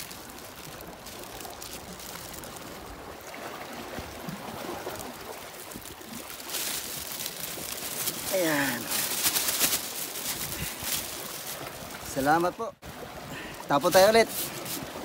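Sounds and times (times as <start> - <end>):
plastic bag rustling: 0.0 - 3.0, 4.8 - 12.2
sea water washing on shore: 0.0 - 15.0.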